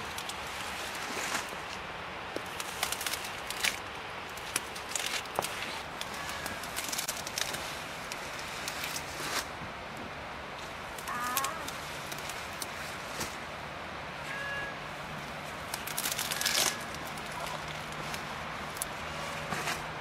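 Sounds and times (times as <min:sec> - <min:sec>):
leaves rustling and crackling: 0:00.0 - 0:20.0.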